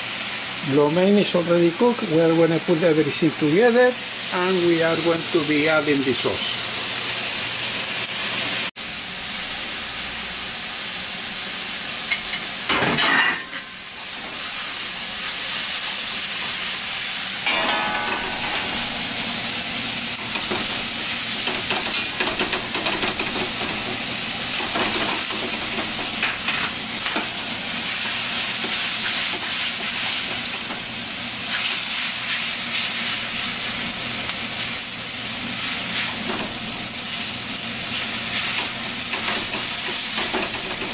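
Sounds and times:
vegetables sizzling in a wok: 0.0 - 40.9
clattering in a wok: 12.1 - 13.8, 17.4 - 19.1, 20.2 - 27.4, 38.4 - 40.9.

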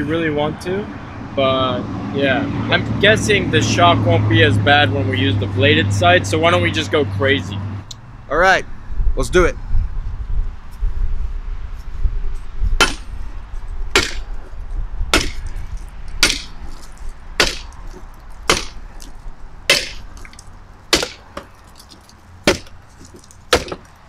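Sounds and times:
blade chopping into gel dummy: 18.5 - 18.8, 19.7 - 21.5.

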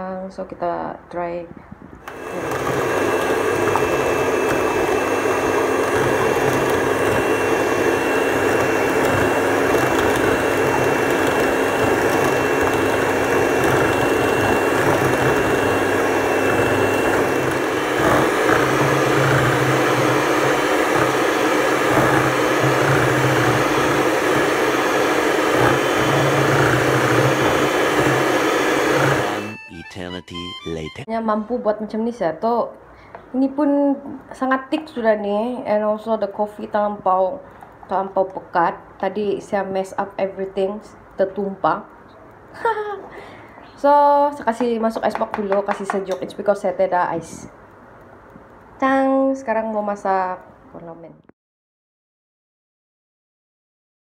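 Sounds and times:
electric mixer whipping: 2.0 - 29.6
high motor whine: 2.1 - 29.6.

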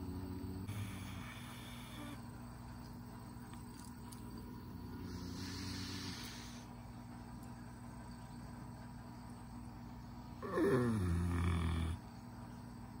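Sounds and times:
pet snoring: 0.0 - 2.2, 4.7 - 6.6, 10.4 - 12.0.

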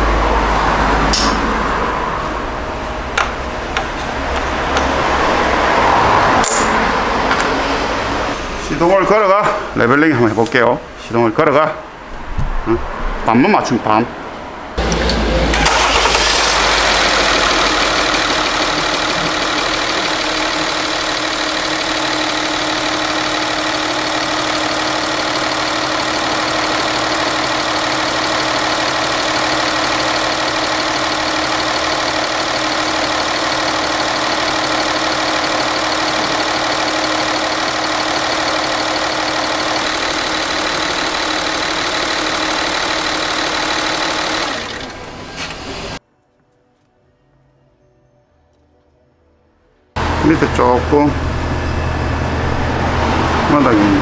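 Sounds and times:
car engine starting and idling: 14.8 - 46.0.

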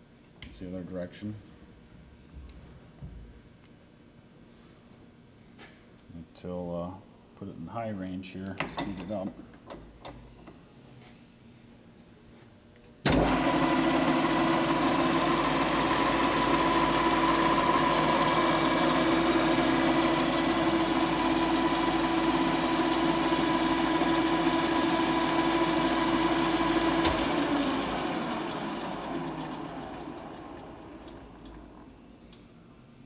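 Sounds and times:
lathe running with gear whine: 13.1 - 31.9.

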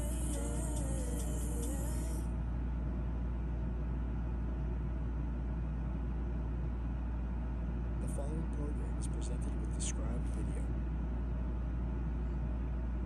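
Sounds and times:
loud low hum: 0.0 - 13.0.

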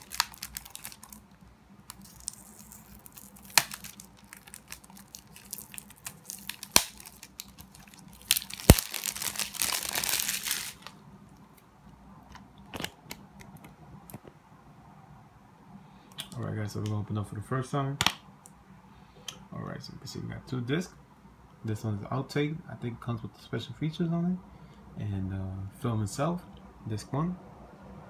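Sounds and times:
plastic film tearing: 0.0 - 1.3, 1.9 - 10.9
plastic shrink-wrap crinkling: 0.0 - 11.0.

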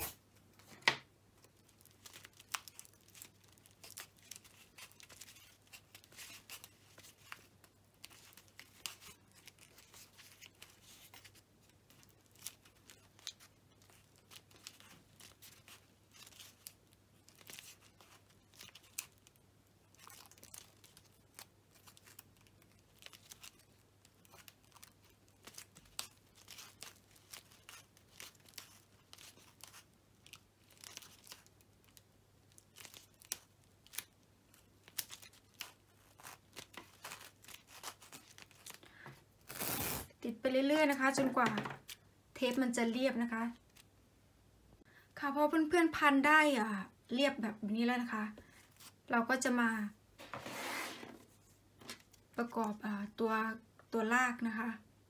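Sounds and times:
crinkling of tape and foil: 1.4 - 40.1.

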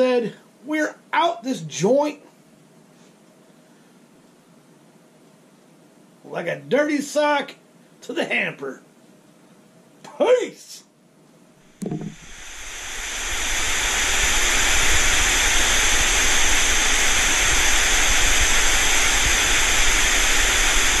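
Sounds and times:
tv static hiss: 0.0 - 3.5, 4.1 - 11.0, 11.6 - 21.0
click and thump: 11.8 - 12.2.

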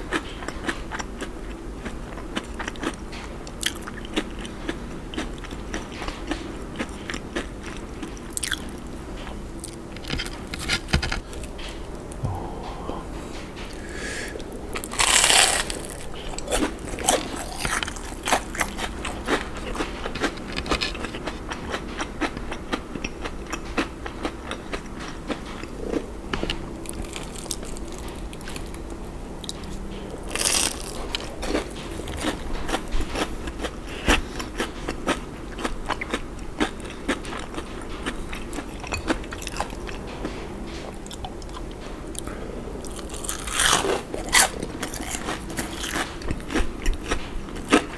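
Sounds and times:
crisp crunchy chewing: 0.0 - 40.4, 42.2 - 47.9
crunchy bites into fried food: 14.8 - 21.0, 30.3 - 32.4.

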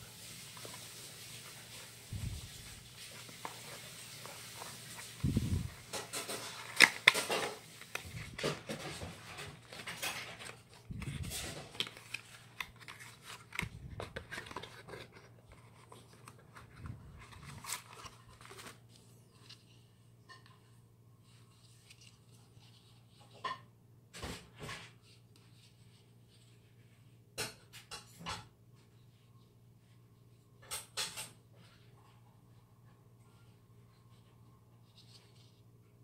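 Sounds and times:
cardboard rustles and scrapes: 0.0 - 19.9.

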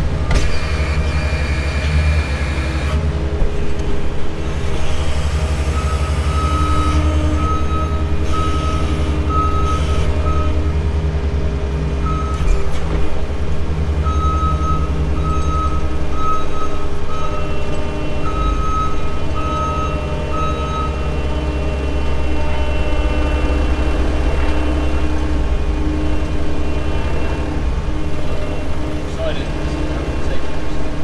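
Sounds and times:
diesel engine running: 0.0 - 31.0
reversing alarm beeping: 5.6 - 10.7, 12.0 - 12.6, 14.0 - 27.5.

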